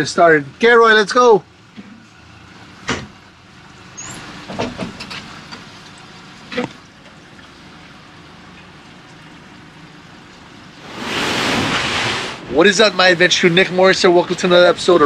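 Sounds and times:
boat and trailer clunks and rattles: 1.1s - 7.3s.

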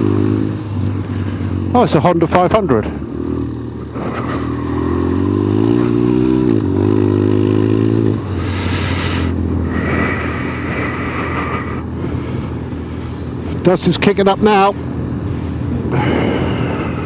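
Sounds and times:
motorcycle engine accelerating: 0.0s - 17.0s
wind and gravel noise: 8.2s - 17.0s.

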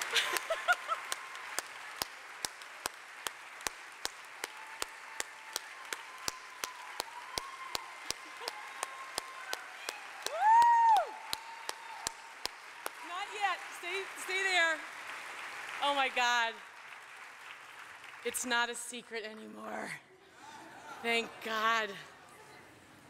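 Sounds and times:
rhythmic clapping: 0.0s - 18.9s
person whooping: 10.2s - 12.0s.

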